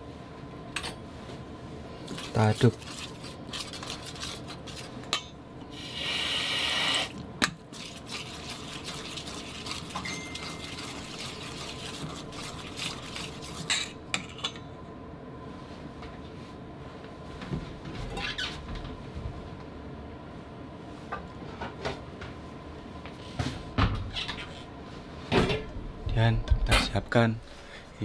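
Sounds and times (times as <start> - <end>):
spoon stirring in metal bowl: 2.0 - 5.4, 7.5 - 14.6
tap water running into bowl: 7.8 - 13.6.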